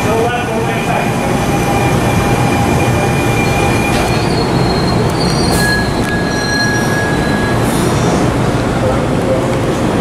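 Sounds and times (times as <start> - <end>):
train wheels rumbling on rails: 0.0 - 10.0
high-pitched wheel squeal: 1.5 - 8.1.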